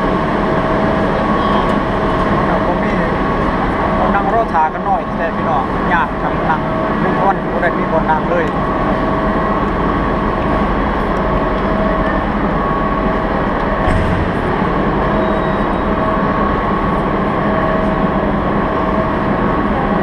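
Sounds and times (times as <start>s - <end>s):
railway station hall din: 0.0s - 20.0s
brief knock: 13.8s - 15.8s.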